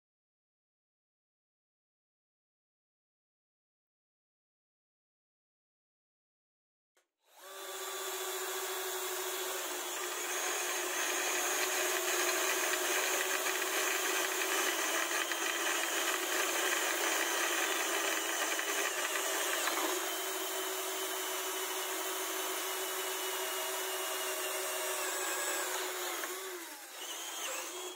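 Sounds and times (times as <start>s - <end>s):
electric drill boring through steel: 7.3s - 27.9s.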